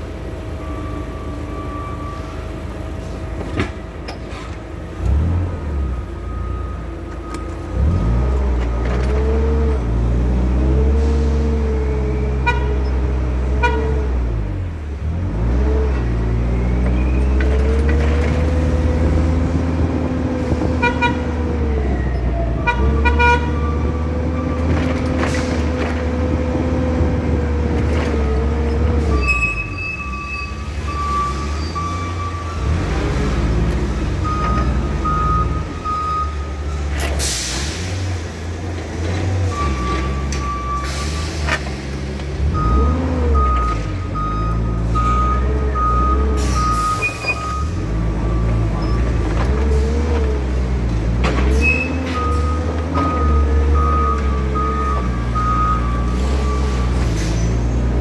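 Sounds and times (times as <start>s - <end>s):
forklift horn toots: 12.2s - 14.2s, 20.6s - 21.6s, 22.5s - 23.9s.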